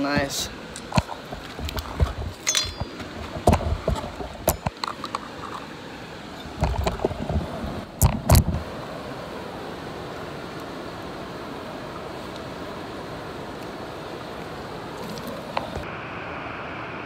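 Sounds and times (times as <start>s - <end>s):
falling water rushing: 0.0s - 16.0s
gear rustling and thumping on rock: 0.8s - 5.4s.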